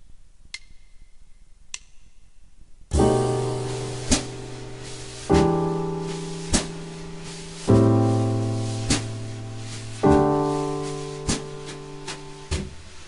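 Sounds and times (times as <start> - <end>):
jazz piano chords: 2.9 - 13.0.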